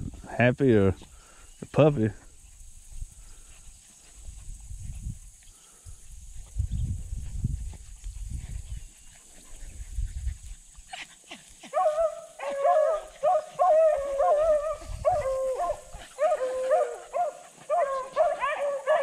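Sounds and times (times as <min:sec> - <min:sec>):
wind rumble: 0:06.0 - 0:10.6, 0:13.8 - 0:16.2
hounds baying: 0:10.7 - 0:19.0.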